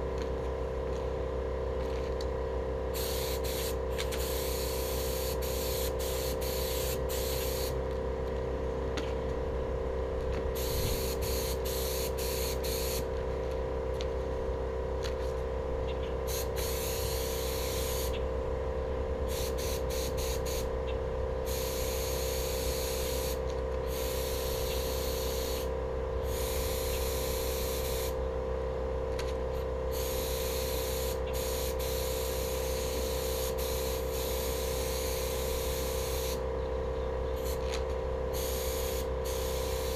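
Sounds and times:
steady hum: 0.0 - 39.9
paint spray gun hissing: 3.0 - 7.8, 10.6 - 13.1, 16.3 - 18.2, 19.3 - 20.7, 21.5 - 25.7, 26.3 - 28.2, 29.9 - 36.4, 37.4 - 39.9.

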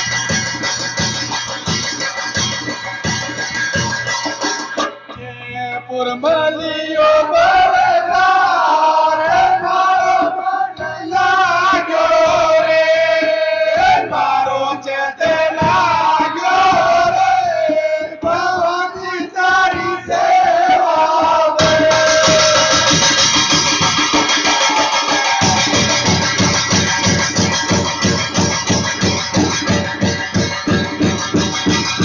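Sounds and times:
devotional song with accompaniment: 3.6 - 26.9.

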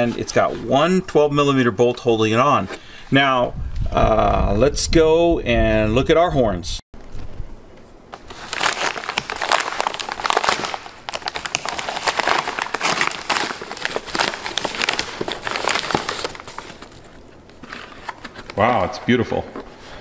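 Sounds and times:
paper mailer tearing and crinkling: 8.2 - 18.8.

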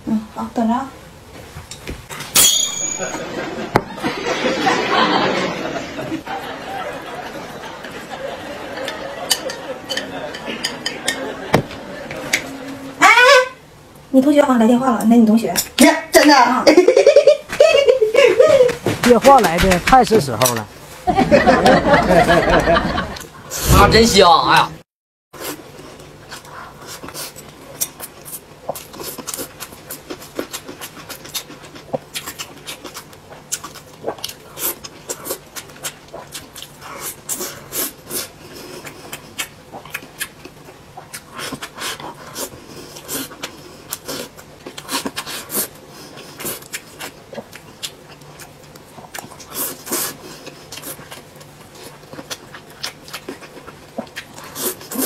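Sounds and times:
person chewing and lip smacking: 25.4 - 55.0.

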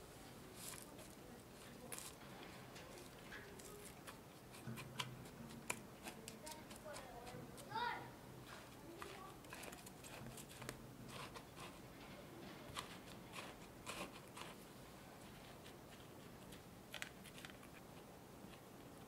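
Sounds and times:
spatula scraping crumbs: 8.7 - 11.9, 12.7 - 14.6.

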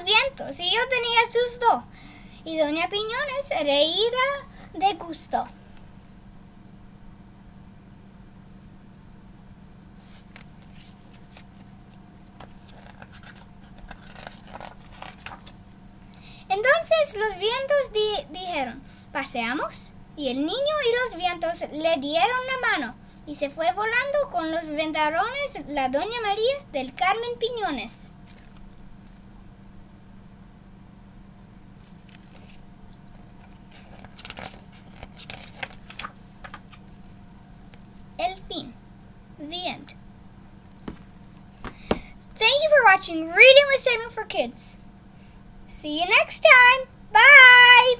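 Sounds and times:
steady low hum: 0.0 - 47.9
book pages turning: 10.0 - 15.7, 28.2 - 29.2, 31.8 - 38.2, 40.6 - 42.0.

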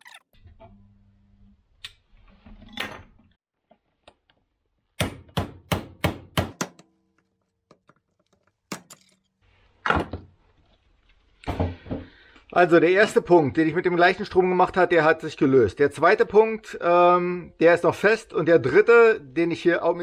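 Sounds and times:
hammer striking a chisel: 5.0 - 7.2.

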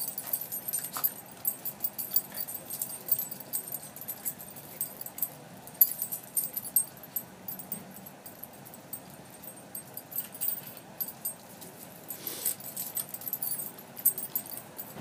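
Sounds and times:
dog tags jingling: 0.0 - 15.0.

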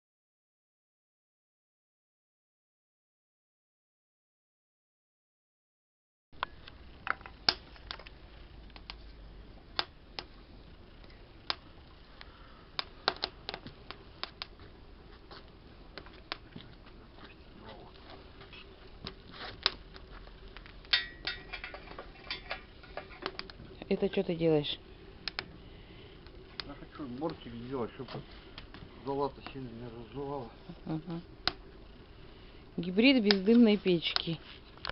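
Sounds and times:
metallic clicks and knocks: 20.9 - 23.6.

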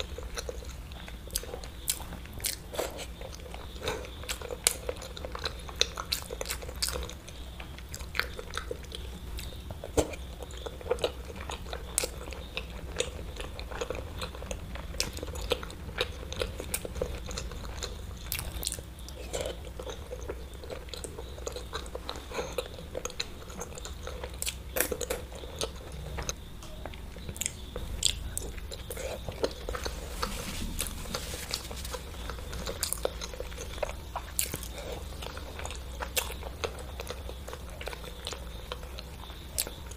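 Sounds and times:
chewing and biting: 0.0 - 26.4, 27.2 - 39.9.

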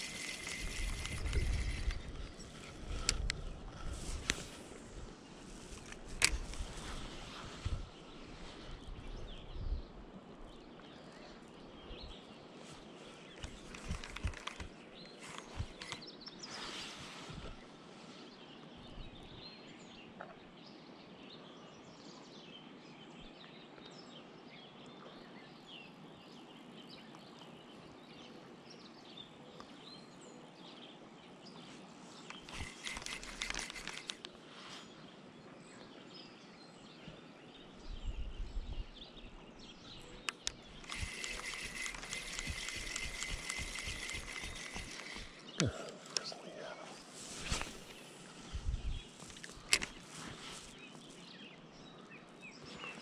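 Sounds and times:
birds chirping: 0.0 - 20.8, 24.7 - 53.0
steady hiss: 40.9 - 51.2.

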